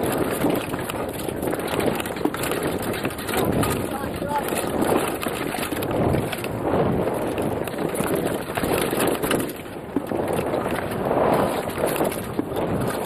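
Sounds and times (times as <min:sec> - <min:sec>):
wind over microphone: 0:00.0 - 0:13.0.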